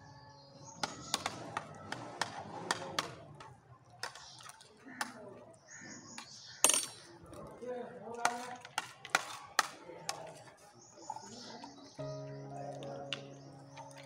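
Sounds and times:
metal spoons clinking on trays: 0:06.2 - 0:07.5.

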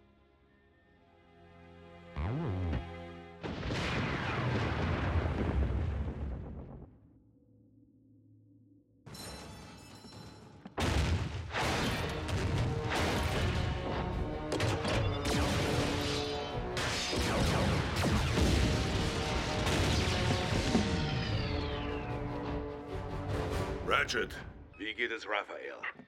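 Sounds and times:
dramatic action music: 0:09.1 - 0:24.7.

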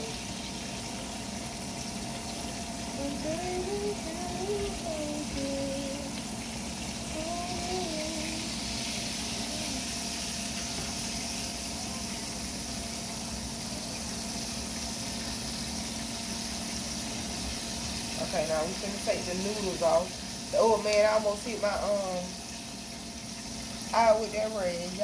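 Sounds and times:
pots boiling with steady hiss: 0:00.0 - 0:25.0.

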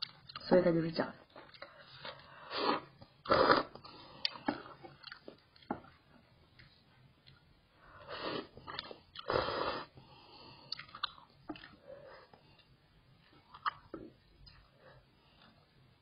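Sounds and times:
person slurping noodles: 0:02.4 - 0:04.4, 0:08.1 - 0:10.0
chewing and mouth smacks: 0:04.2 - 0:07.5, 0:10.7 - 0:11.8, 0:13.5 - 0:14.7.

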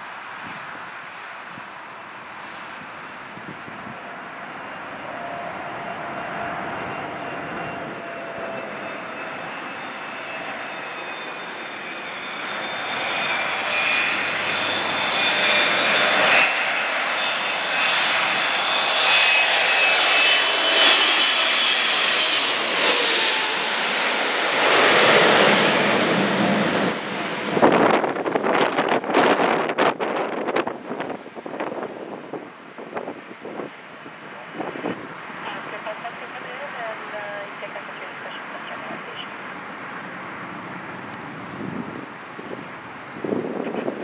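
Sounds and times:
jet airliner passing overhead: 0:00.0 - 0:44.0
wind buffeting microphone: 0:02.6 - 0:10.5, 0:24.7 - 0:35.6, 0:41.0 - 0:44.0.

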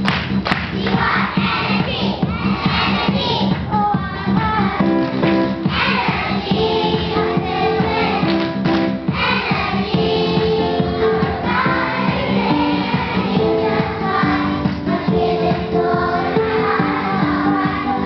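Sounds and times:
musical accompaniment: 0:00.0 - 0:18.0
children singing in unison: 0:05.7 - 0:08.4, 0:09.1 - 0:18.0.

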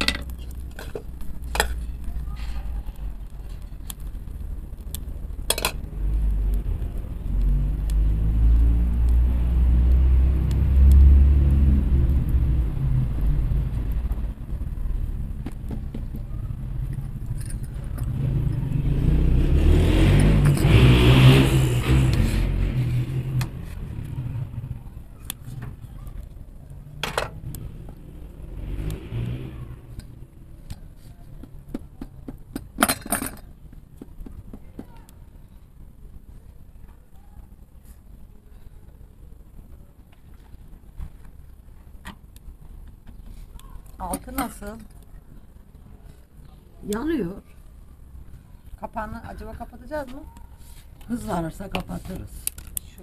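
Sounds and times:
vehicle engine rumble: 0:00.0 - 0:53.0
vehicle passing: 0:05.9 - 0:15.3, 0:17.7 - 0:25.0, 0:27.3 - 0:30.5.

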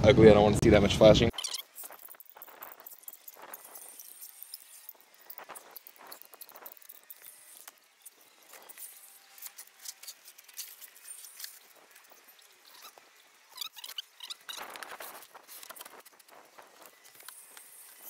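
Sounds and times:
metal scraping on shingles: 0:01.5 - 0:18.0
brief squeaks: 0:12.7 - 0:16.2.

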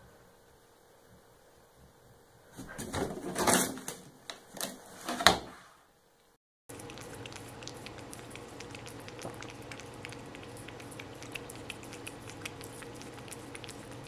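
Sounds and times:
low room hum: 0:00.0 - 0:14.0
cats licking wetly: 0:06.7 - 0:14.0.

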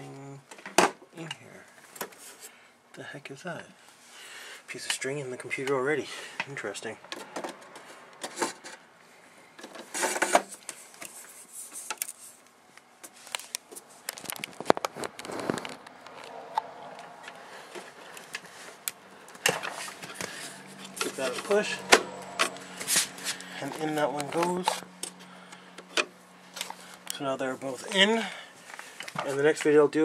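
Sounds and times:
hands handling computer parts: 0:06.4 - 0:08.9, 0:09.5 - 0:27.2, 0:27.9 - 0:29.8.

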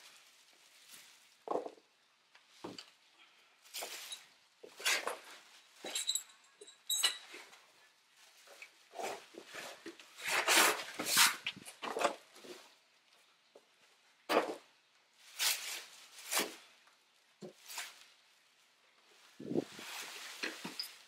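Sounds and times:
plastic bag rustling: 0:00.0 - 0:01.9, 0:14.4 - 0:21.0.

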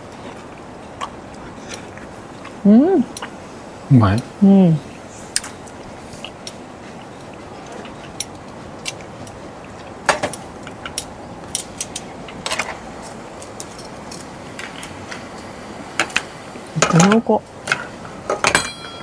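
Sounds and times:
steady background noise: 0:00.0 - 0:19.0.

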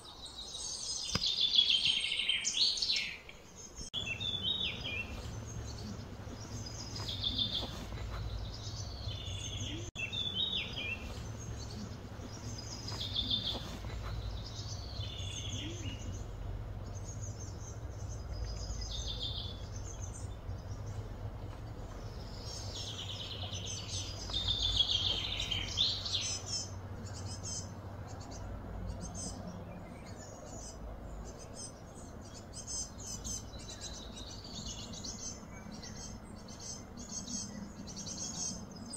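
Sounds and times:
birds chirping: 0:00.0 - 0:38.9
low outdoor rumble: 0:03.5 - 0:38.9.

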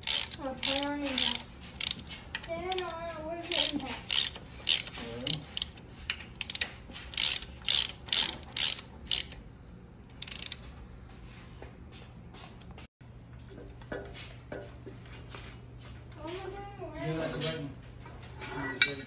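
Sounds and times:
hand ratchet clicking: 0:00.0 - 0:09.4, 0:10.1 - 0:10.7.

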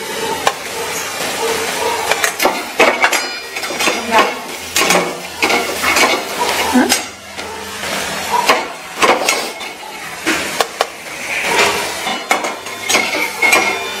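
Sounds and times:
spatula scraping metal pan: 0:11.0 - 0:14.0.

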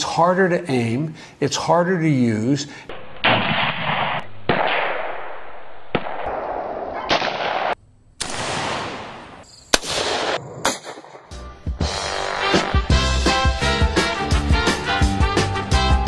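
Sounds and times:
rifle shots echoing: 0:03.2 - 0:11.4.

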